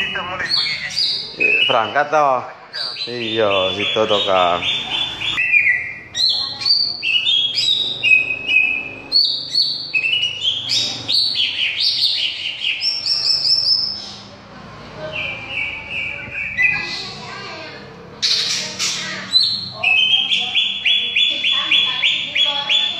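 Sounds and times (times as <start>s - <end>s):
bird singing whistled phrases: 2.9s - 14.0s, 15.1s - 17.0s.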